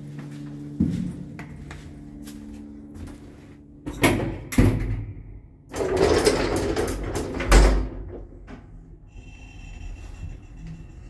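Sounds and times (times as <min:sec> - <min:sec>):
lift doors sliding closed: 0:05.7 - 0:08.7.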